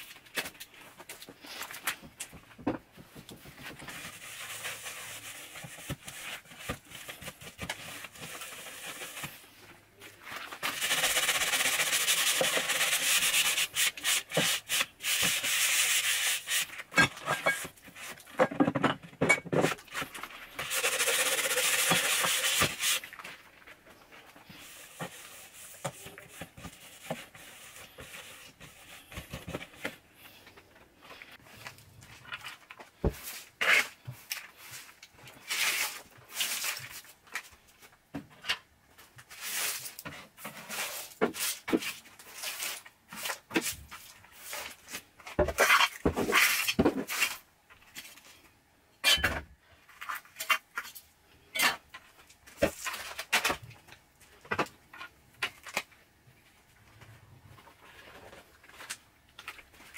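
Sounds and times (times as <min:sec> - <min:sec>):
rubber glove scrubbing shelf: 0:19.8 - 0:32.2.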